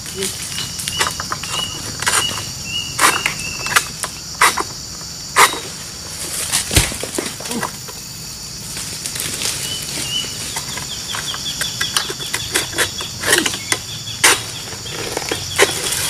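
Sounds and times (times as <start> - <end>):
pole knocking against palm fronds: 5.4 - 7.9.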